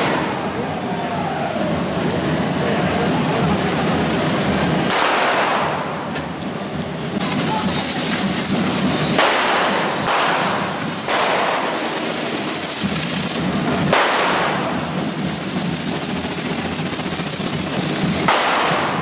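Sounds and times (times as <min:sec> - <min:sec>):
firework bang: 0:00.0 - 0:00.7, 0:04.6 - 0:06.3, 0:07.2 - 0:15.8, 0:17.7 - 0:19.0
firework fountains hissing: 0:00.0 - 0:19.0
fireworks crackling: 0:00.0 - 0:19.0.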